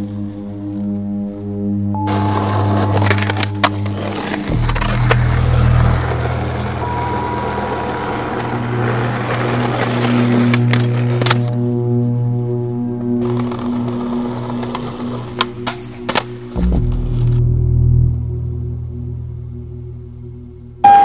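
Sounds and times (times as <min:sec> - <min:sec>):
skateboard wheels rolling on concrete: 0:00.0 - 0:17.4
background music with bass line: 0:01.1 - 0:06.9, 0:16.5 - 0:20.8
skateboard clacks: 0:02.1 - 0:11.6.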